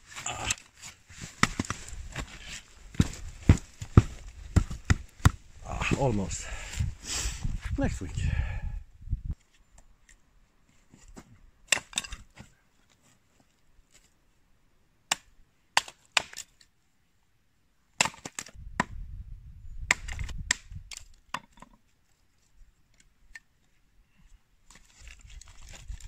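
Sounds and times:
hatchet chopping wood: 1.4s - 1.8s, 3.0s - 5.4s, 15.1s - 16.5s, 18.0s - 19.0s, 19.9s - 21.7s.

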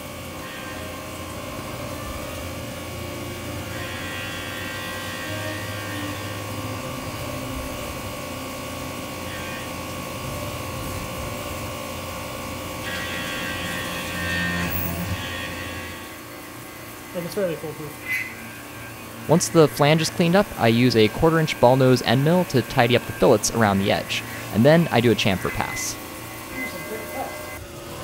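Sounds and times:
end mill cutting metal: 0.0s - 28.0s
mill spindle whine: 0.0s - 28.0s.

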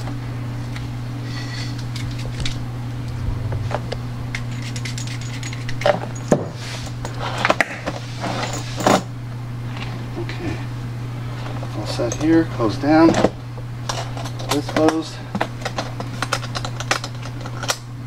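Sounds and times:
steady low hum: 0.0s - 7.2s.

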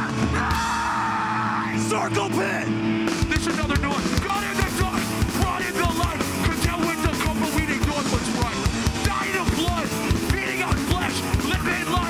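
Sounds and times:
bass guitar: 0.0s - 12.0s
distorted electric guitars: 0.0s - 12.0s
fast drums: 3.0s - 12.0s.

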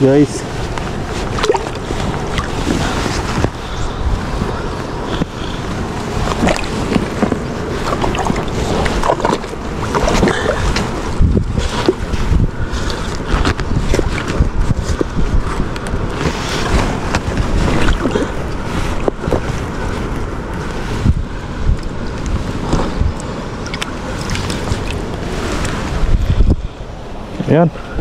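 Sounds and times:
running water: 0.0s - 14.5s, 21.7s - 26.2s
wind buffeting microphone: 0.0s - 28.0s.

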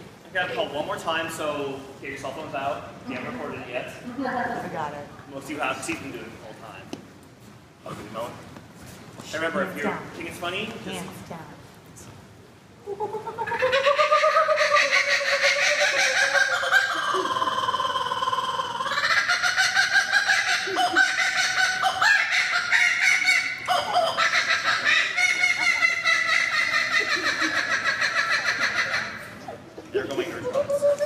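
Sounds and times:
kookaburra laughing call: 12.8s - 31.0s.

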